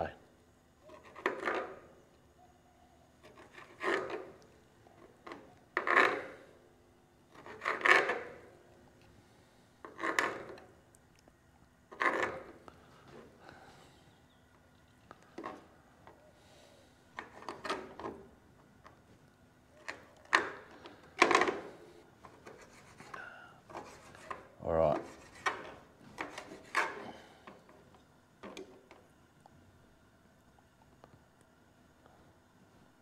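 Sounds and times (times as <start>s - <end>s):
knife scraping on chopping board: 3.2s - 4.3s, 5.3s - 6.5s, 7.3s - 8.5s, 22.3s - 27.3s.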